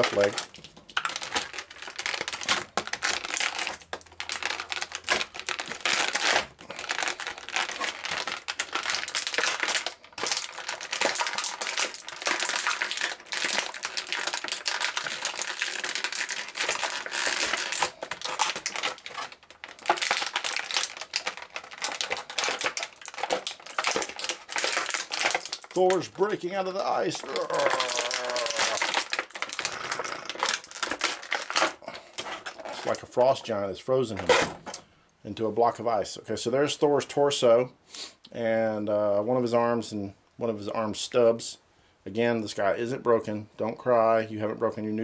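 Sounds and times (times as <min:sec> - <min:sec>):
plastic packaging crinkling: 0:00.0 - 0:33.5.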